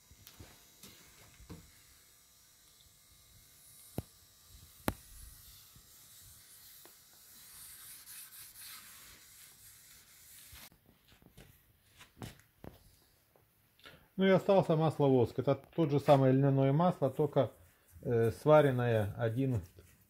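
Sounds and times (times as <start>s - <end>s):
cloth rubbing wood: 6.3s - 12.9s.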